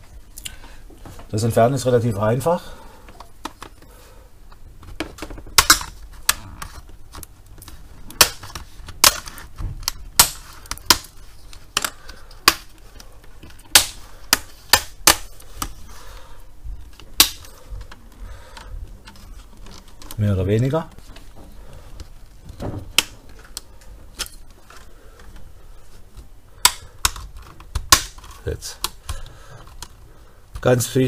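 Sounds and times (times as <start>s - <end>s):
plastic clips popping loose: 4.5s - 15.8s, 16.9s - 20.2s, 22.0s - 25.5s, 26.6s - 30.7s.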